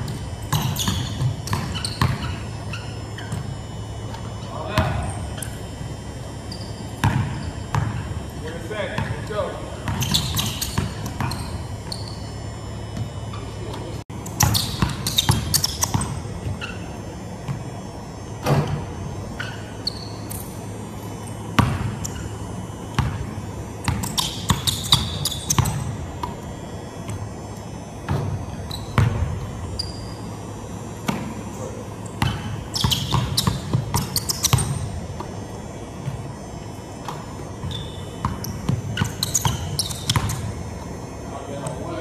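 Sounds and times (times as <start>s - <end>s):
basketball bouncing on wooden floor: 0.0s - 2.4s, 7.0s - 8.1s, 32.2s - 35.4s, 37.0s - 40.5s
sneakers squeaking: 0.0s - 42.0s.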